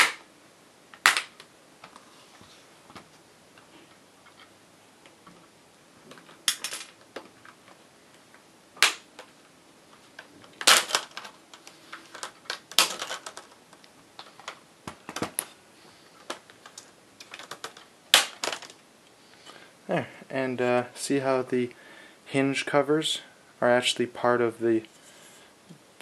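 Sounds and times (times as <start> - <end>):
plastic piece falling: 0.0 - 0.3, 0.9 - 2.0, 6.1 - 7.8, 8.8 - 9.4, 10.2 - 15.5, 16.2 - 18.8
plastic clips snapping: 0.9 - 1.5.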